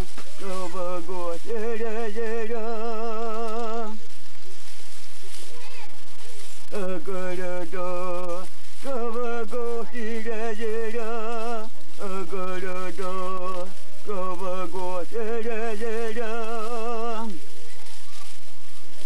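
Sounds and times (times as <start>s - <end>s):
person chanting unaccompanied: 0.3s - 4.1s, 6.7s - 17.5s.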